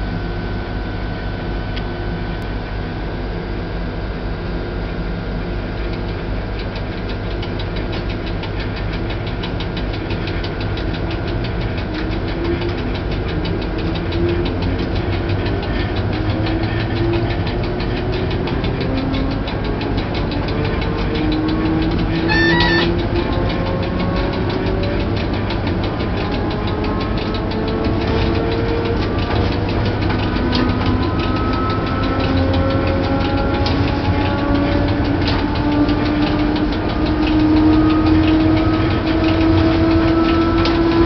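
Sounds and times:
locomotive cab rumble and rattle: 0:04.9 - 0:41.0
brief high tone: 0:22.2 - 0:23.0.

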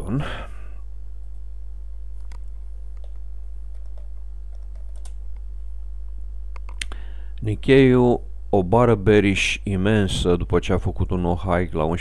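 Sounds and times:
low electrical hum: 0:00.0 - 0:12.0
keyboard keystrokes and clicks: 0:02.2 - 0:05.2.

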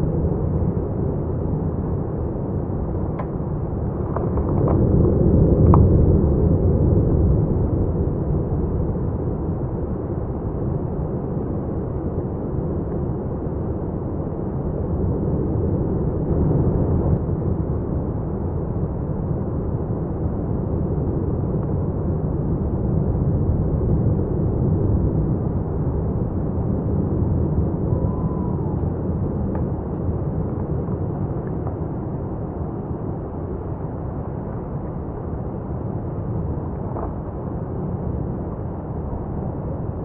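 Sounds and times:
lava fountain low rumble: 0:00.0 - 0:40.0.

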